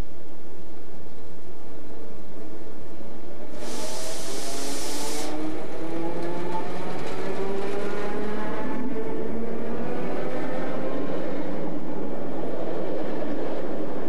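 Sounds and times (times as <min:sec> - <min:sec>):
train hiss: 0:03.5 - 0:05.4
train whine shifting in pitch: 0:03.5 - 0:05.8.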